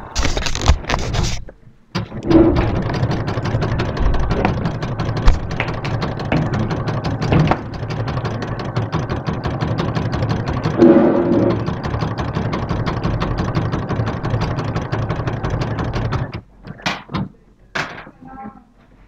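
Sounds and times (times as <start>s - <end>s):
sewing machine running: 2.2s - 16.5s.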